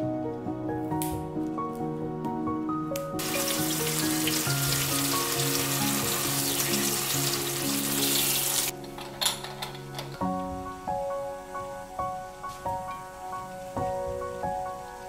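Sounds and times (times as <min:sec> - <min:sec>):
soft background music: 0:00.0 - 0:15.0
tap water running: 0:03.2 - 0:08.7.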